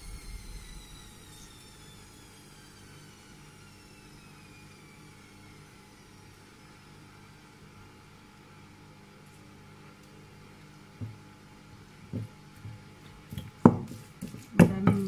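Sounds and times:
faint mechanical whine falling: 0.0 - 8.9
steady low hum: 0.0 - 13.8.

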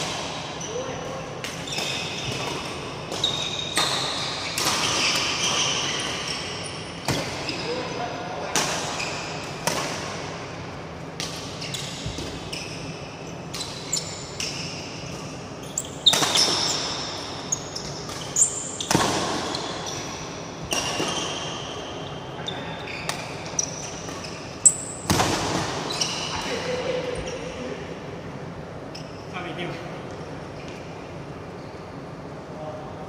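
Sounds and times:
shoes squeaking on court: 0.3 - 7.9, 11.5 - 26.5, 31.5 - 32.1
rackets striking shuttlecock: 13.4 - 21.2.

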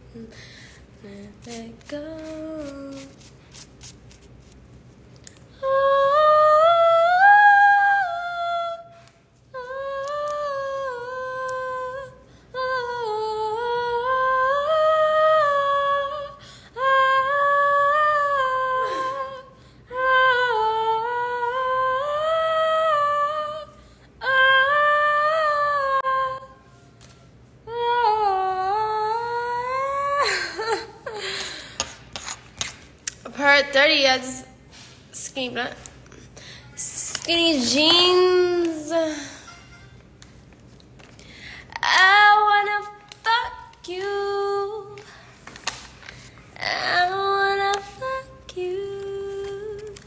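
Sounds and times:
woman singing wordless melody: 1.0 - 3.2, 5.5 - 27.0, 27.6 - 31.2, 36.8 - 39.5, 41.7 - 45.2, 46.6 - 50.0.

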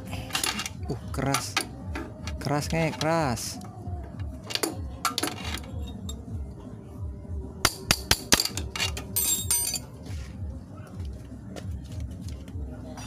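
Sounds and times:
ringing metal clink: 5.8 - 6.2, 8.4 - 9.9.

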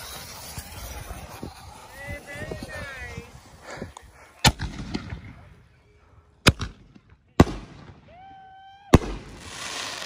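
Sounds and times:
firework mortar bangs: 8.9 - 10.0.

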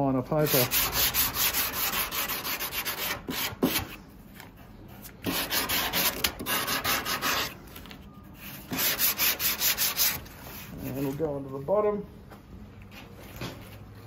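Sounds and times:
sandpaper rasping back and forth: 0.4 - 3.8, 5.2 - 7.6, 8.7 - 10.2.

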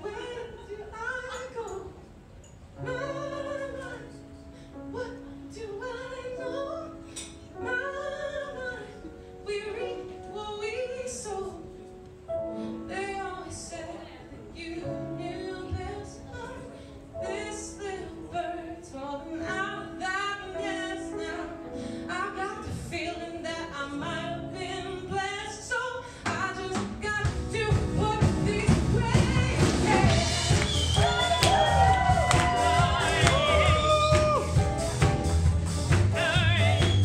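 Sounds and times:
woman singing: 0.0 - 2.0, 2.8 - 11.9, 12.6 - 34.6
grand piano: 0.0 - 37.0
electric bass: 27.8 - 37.0.

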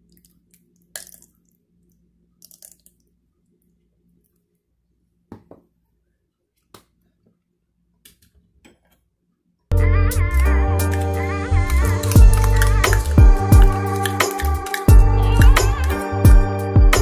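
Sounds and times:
kitchen utensils clicking: 13.8 - 14.9.

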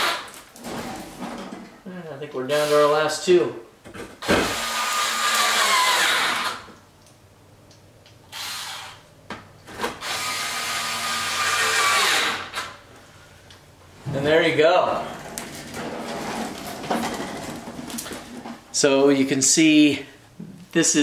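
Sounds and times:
cordless drill driving screws: 4.2 - 6.7, 8.3 - 9.0, 9.8 - 12.8.

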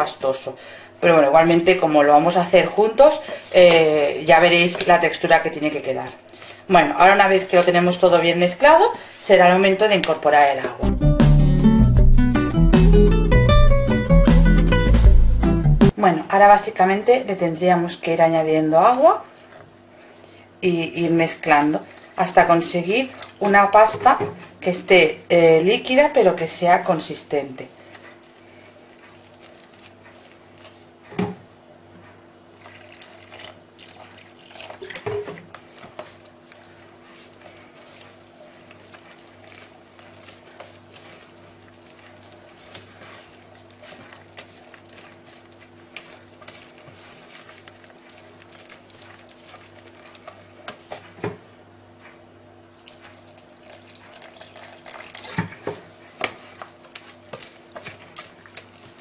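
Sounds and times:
spoon stirring thick batter: 18.9 - 25.0, 25.8 - 31.4, 32.0 - 59.0
spoon knocking and scraping tub: 34.7 - 36.2.

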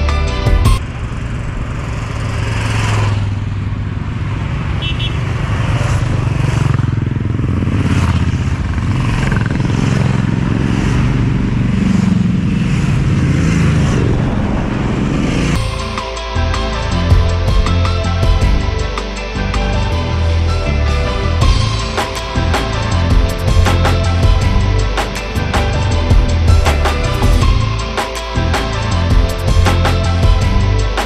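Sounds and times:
road noise: 0.0 - 31.0
motorcycle engine running: 0.5 - 15.8.

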